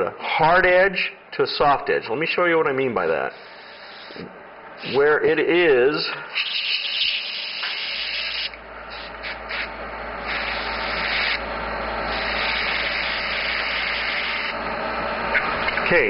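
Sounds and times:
airbrush spraying air: 3.3 - 5.1, 6.3 - 11.4, 12.0 - 14.6.

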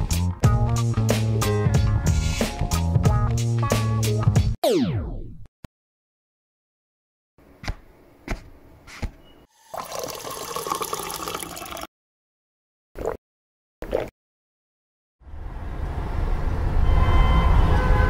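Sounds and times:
tap water pouring into glass: 9.7 - 11.9
person gulping: 9.8 - 11.9, 13.0 - 13.2, 13.8 - 14.1.

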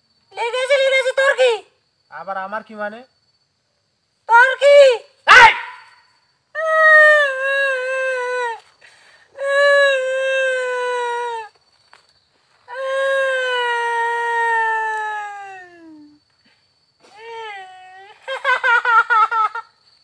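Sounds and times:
long howls: 6.6 - 8.6, 12.7 - 16.1.

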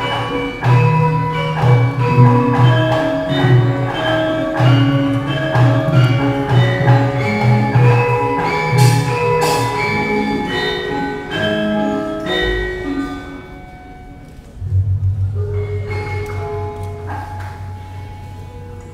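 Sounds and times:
gamelan playing: 0.0 - 18.9
low sustained hum: 14.5 - 18.9
deep wobbling gong stroke: 14.6 - 18.8.

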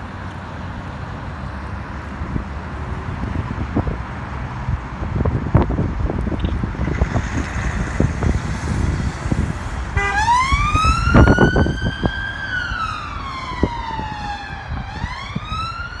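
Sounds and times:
wind on microphone: 2.1 - 16.0
police siren wailing: 9.3 - 16.0.

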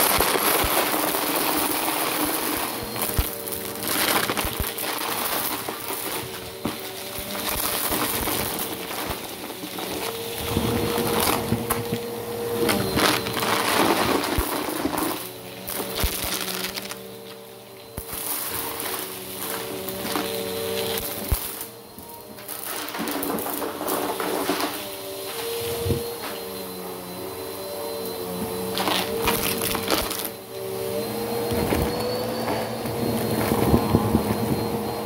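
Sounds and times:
crunching plastic rattle: 0.0 - 11.9, 12.6 - 17.4, 28.8 - 30.3
vacuum motor hum: 0.0 - 35.0.

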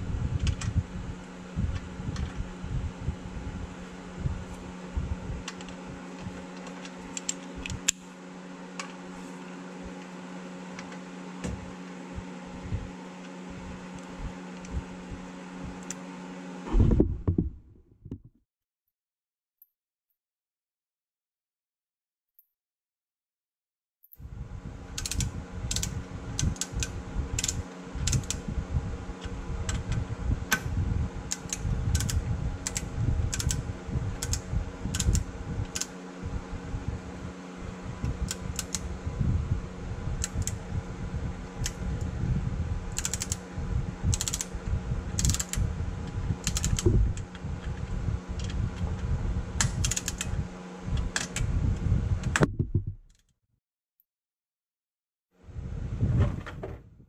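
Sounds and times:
steady mechanical hum: 0.0 - 18.2, 24.1 - 53.0, 55.4 - 57.0
torque wrench ratcheting: 42.9 - 43.4, 44.1 - 44.5, 45.2 - 45.6, 46.4 - 46.9.

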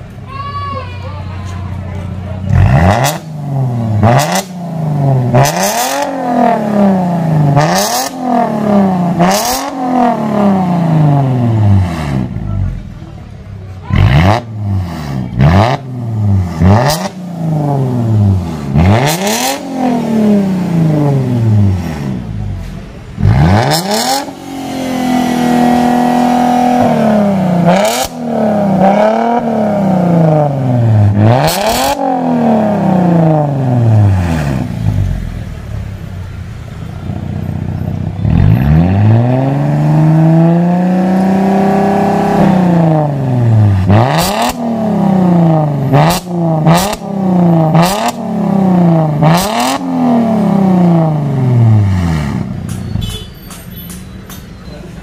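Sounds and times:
car engine revving: 2.0 - 53.9.

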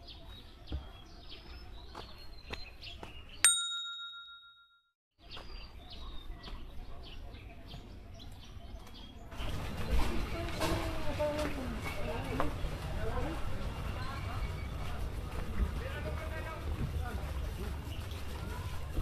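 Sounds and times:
small birds chirping: 0.0 - 3.7, 5.2 - 10.6
bell-like ding: 3.5 - 4.9.

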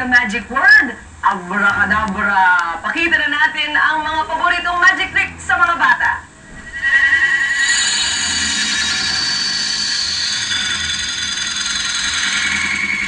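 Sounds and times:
high warbling electronic tones: 6.5 - 13.0.

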